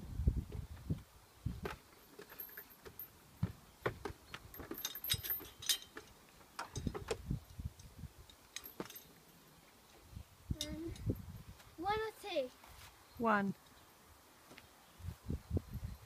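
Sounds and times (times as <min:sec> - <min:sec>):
metal chains jangling: 0:02.0 - 0:03.2, 0:04.5 - 0:07.0, 0:08.3 - 0:09.4.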